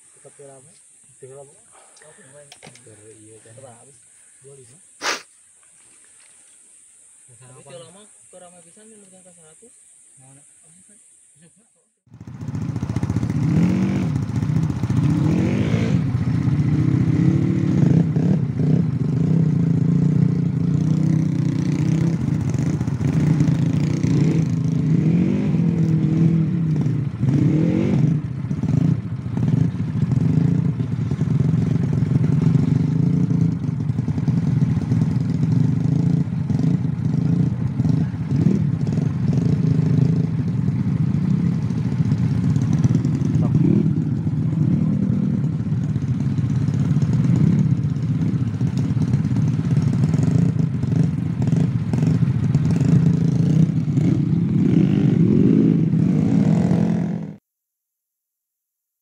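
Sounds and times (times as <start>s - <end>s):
scooter engine revving: 12.1s - 57.4s.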